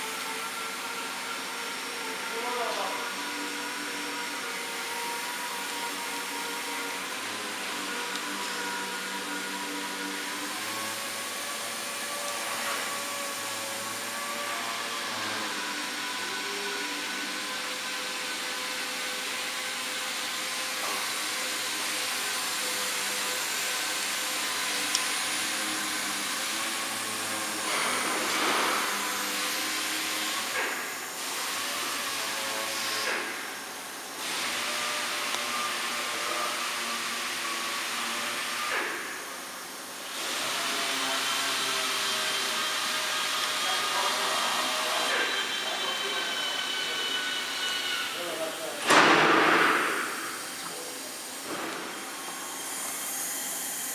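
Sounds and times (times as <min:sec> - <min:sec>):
router motors whining: 0:00.0 - 0:48.9, 0:49.6 - 0:53.9
dust extraction fan hissing: 0:49.9 - 0:53.9.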